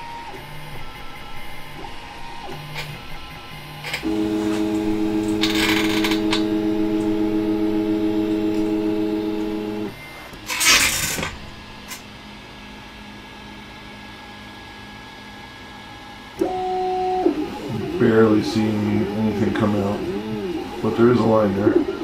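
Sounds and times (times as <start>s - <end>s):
faint steady hum: 0.8s - 22.0s
stepper motors humming: 3.8s - 10.4s, 16.4s - 22.0s.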